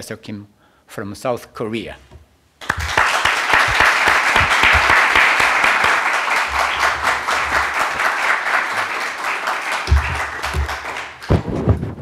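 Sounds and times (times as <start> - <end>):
audience applauding: 2.6 - 11.5.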